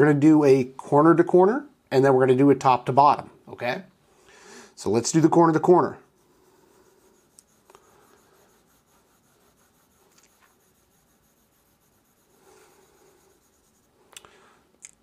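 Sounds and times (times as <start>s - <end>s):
stylus rubbing on glass screen: 5.6s - 14.1s.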